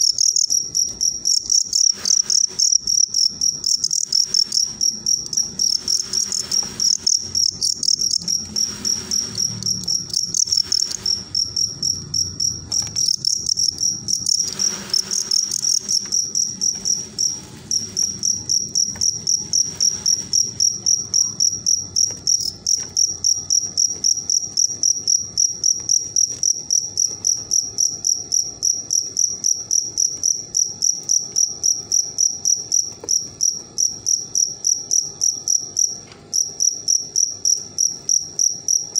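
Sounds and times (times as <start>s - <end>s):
crickets chirping: 0.0s - 38.9s
scratchy scuffling noise: 1.7s - 2.9s, 3.8s - 11.6s, 12.6s - 23.2s.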